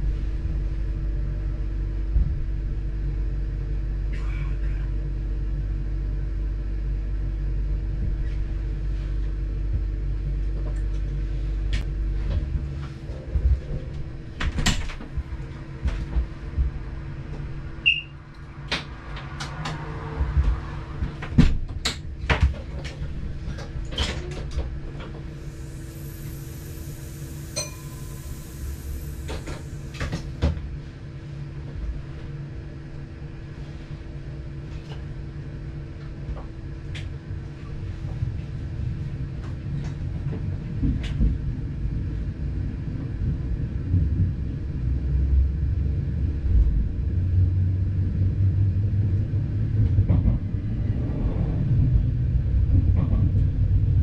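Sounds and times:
train engine drone: 0.0s - 54.0s
steady whine: 24.5s - 33.4s.

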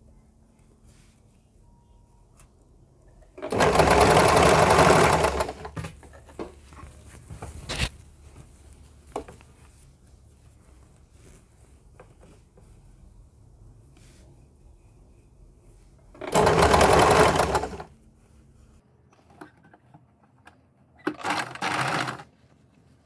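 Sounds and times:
sewing machine stitching: 3.4s - 5.8s, 16.2s - 17.9s, 21.1s - 22.3s
cloth rustling: 3.7s - 14.9s.

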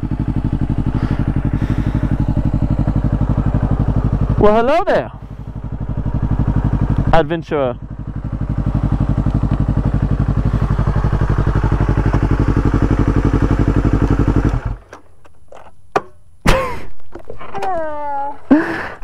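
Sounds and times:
motorcycle engine idling: 0.0s - 14.9s.

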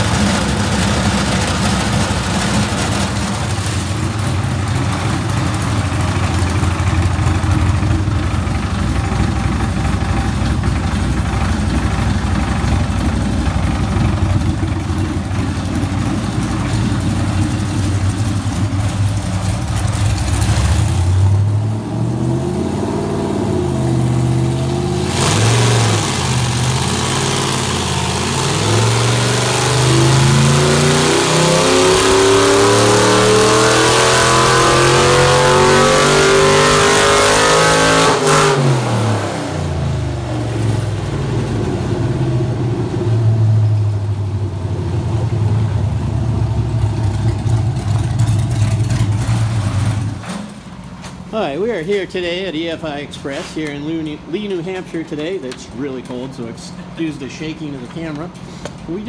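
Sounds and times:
engine idling with blips: 0.0s - 21.7s
engine revving at full throttle: 20.3s - 43.5s.

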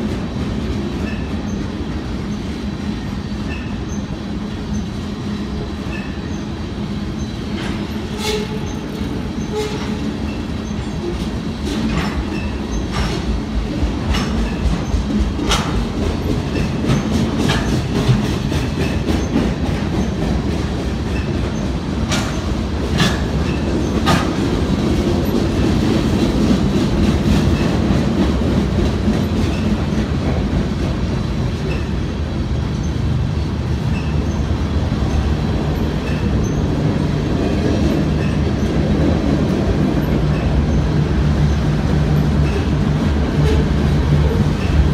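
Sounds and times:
train low rumble: 0.0s - 44.9s
wheels clicking over rail joints: 7.2s - 44.9s.

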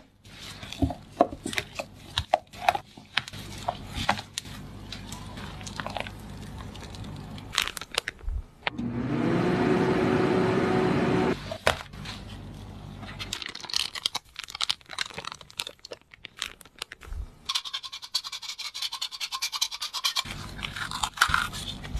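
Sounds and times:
piping bag clicks and rustles: 0.0s - 8.5s, 11.4s - 17.5s, 20.3s - 21.9s
oven humming: 8.7s - 11.4s.

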